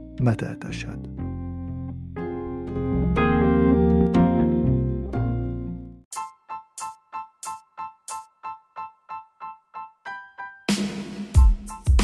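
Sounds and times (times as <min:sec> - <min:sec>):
sustained keyboard chords: 0:00.0 - 0:10.6.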